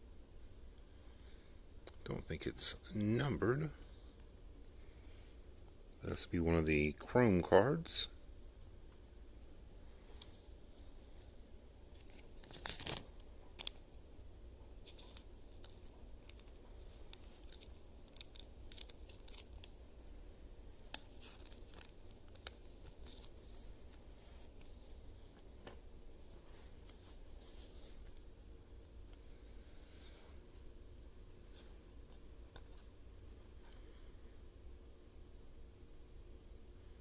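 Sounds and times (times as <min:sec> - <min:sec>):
card rustle: 0:10.1 - 0:13.8, 0:14.8 - 0:19.8, 0:20.8 - 0:28.2
cards clicking and scraping: 0:14.8 - 0:19.8.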